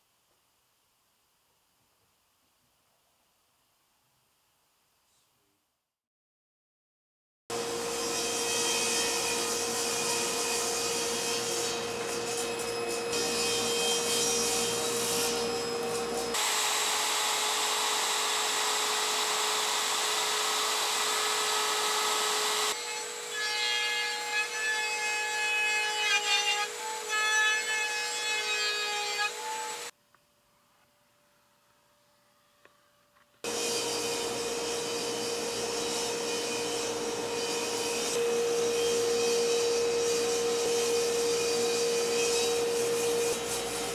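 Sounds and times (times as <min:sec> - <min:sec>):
router whining while cutting wood: 0:07.6 - 0:24.6, 0:33.5 - 0:43.9.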